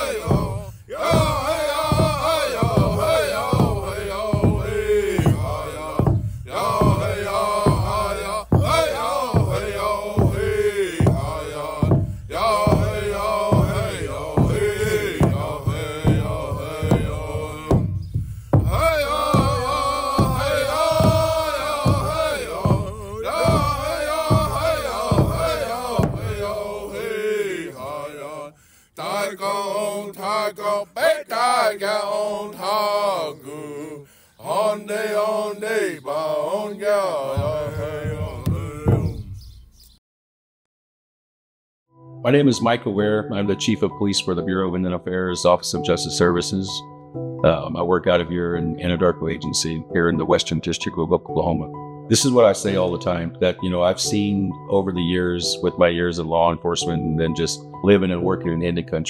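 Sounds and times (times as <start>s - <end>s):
man chanting: 0.0s - 17.9s, 18.6s - 39.3s
steady drum beat: 0.0s - 28.4s, 34.5s - 39.4s.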